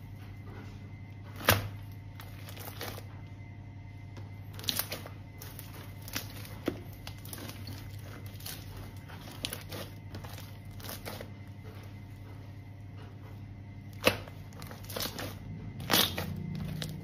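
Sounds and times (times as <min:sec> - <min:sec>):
low steady hum: 0:00.0 - 0:17.0
hands squishing sticky slime: 0:04.5 - 0:12.7, 0:13.8 - 0:17.0.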